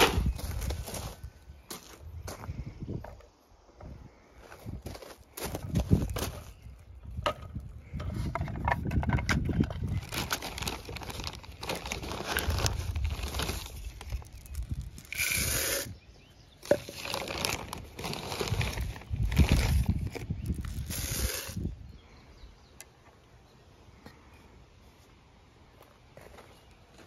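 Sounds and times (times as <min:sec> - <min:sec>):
plastic bag crinkling: 0:09.8 - 0:15.9, 0:16.6 - 0:21.7.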